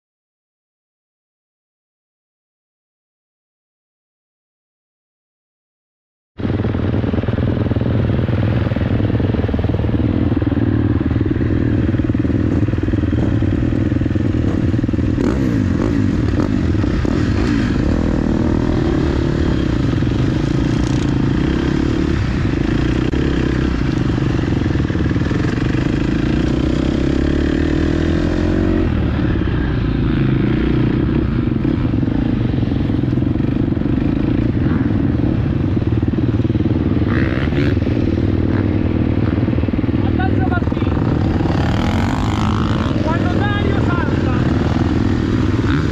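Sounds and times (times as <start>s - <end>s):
motocross bike engine revving: 10.8s - 45.9s.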